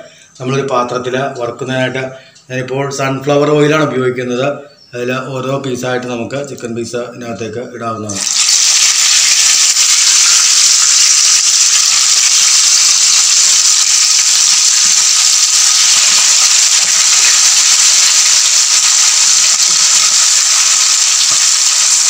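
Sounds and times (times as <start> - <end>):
chicken sizzling in hot oil: 8.2 - 22.0.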